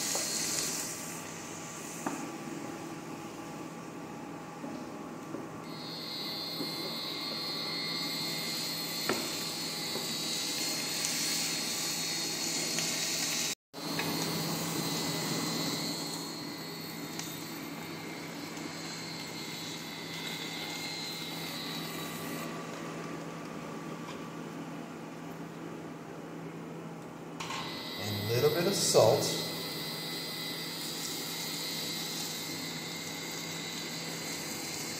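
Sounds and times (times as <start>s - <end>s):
vegetables sizzling in a frying pan: 10.1s - 15.8s.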